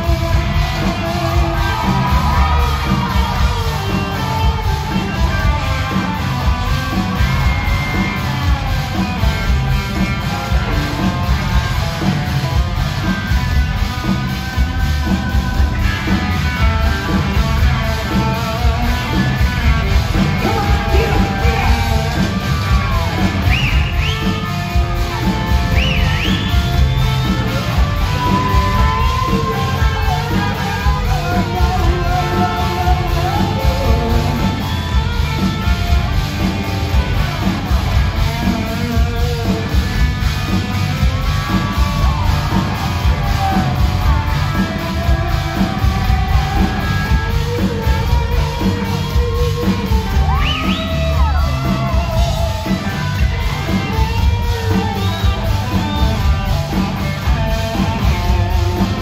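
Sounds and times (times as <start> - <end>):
live rock band: 0.0 - 59.0.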